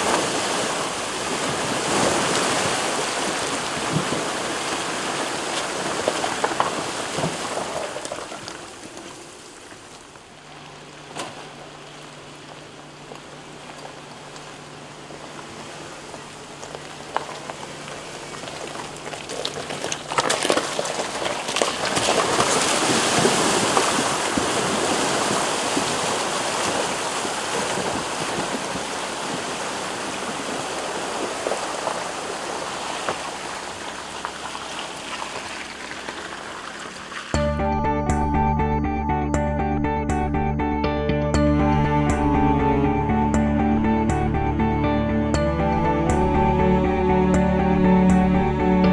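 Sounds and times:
creek water rushing: 0.0s - 37.4s
steady low hum: 8.8s - 19.2s.

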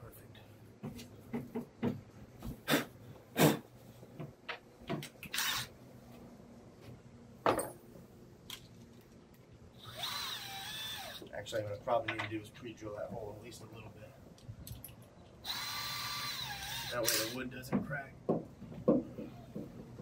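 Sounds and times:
wood and tools knocking: 0.8s - 2.6s, 17.7s - 20.0s
cordless drill running: 5.3s - 5.7s, 9.8s - 11.3s, 15.4s - 17.4s.

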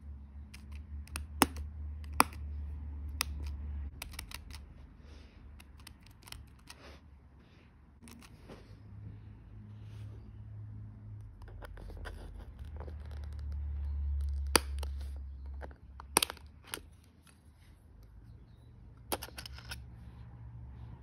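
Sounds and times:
metal tweezers clicking: 3.1s - 4.6s.

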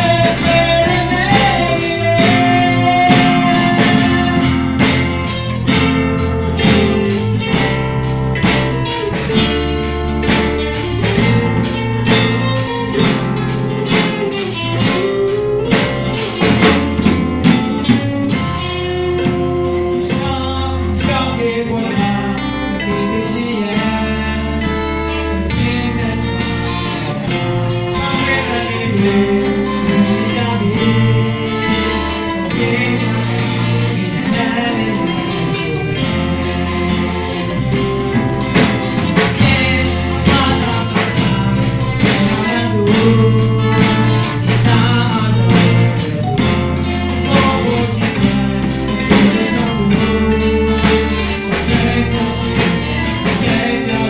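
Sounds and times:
person singing into microphone: 0.0s - 7.6s, 13.8s - 54.0s
drum kit: 0.0s - 54.0s
electric bass: 0.0s - 54.0s
keyboard: 0.0s - 54.0s.

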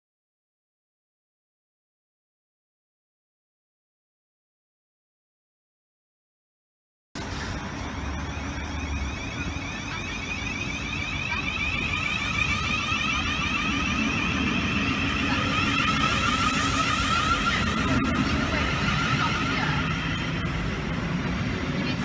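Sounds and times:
electric train whine and rumble: 7.2s - 22.0s.

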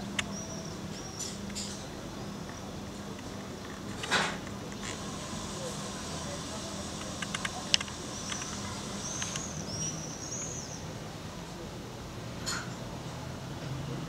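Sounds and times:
small birds chirping: 0.0s - 2.7s, 7.3s - 11.0s.

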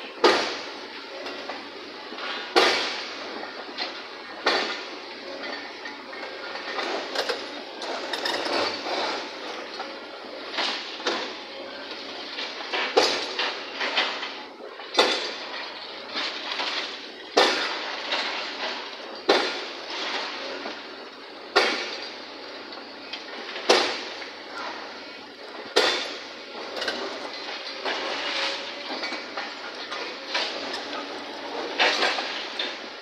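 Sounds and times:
excavator metallic clanks: 0.1s - 33.0s
debris clattering: 31.6s - 33.0s.

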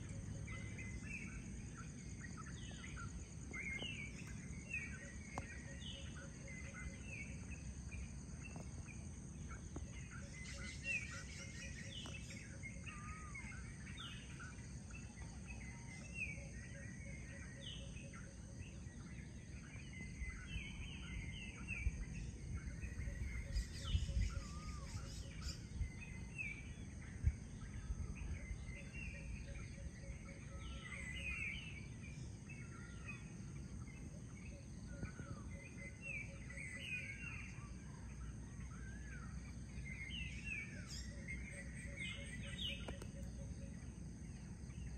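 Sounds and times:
birds chirping and calling: 8.4s - 17.6s, 22.8s - 26.2s.

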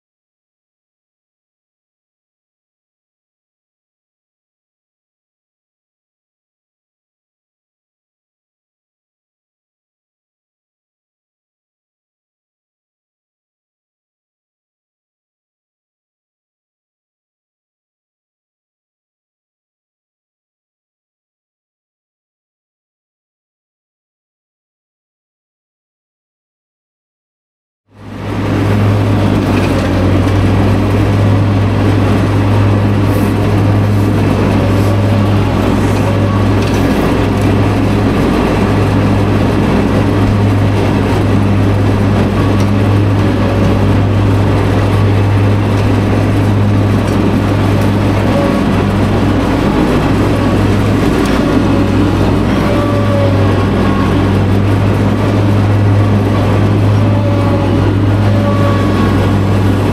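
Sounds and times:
mower engine and blades droning: 27.9s - 59.9s.

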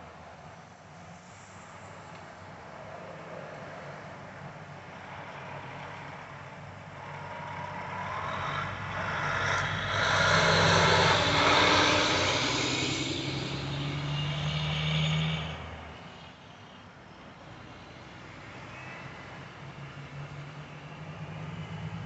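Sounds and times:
traffic passing on asphalt: 0.0s - 22.0s
low engine drone: 6.8s - 14.8s.

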